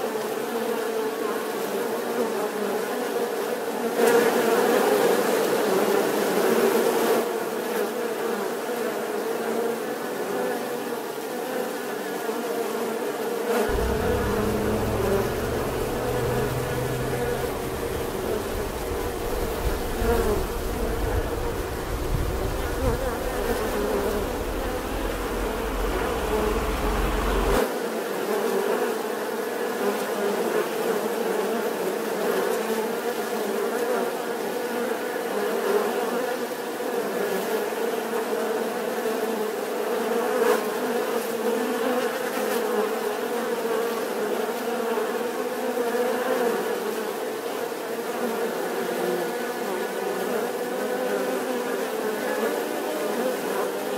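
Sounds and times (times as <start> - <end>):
bees buzzing: 13.7 - 27.6
low rumble: 13.7 - 27.6.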